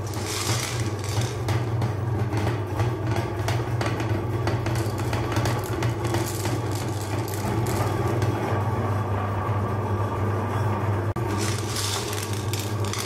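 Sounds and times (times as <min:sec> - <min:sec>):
hard candy clicking and rattling: 0:00.0 - 0:01.6, 0:04.6 - 0:08.0, 0:11.3 - 0:13.0
meat grinder motor humming: 0:00.0 - 0:09.5, 0:11.2 - 0:13.0.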